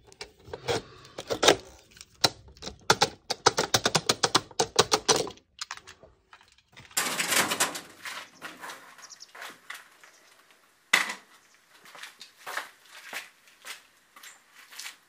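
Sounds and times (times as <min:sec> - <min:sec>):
rustling noise: 0:07.0 - 0:10.7.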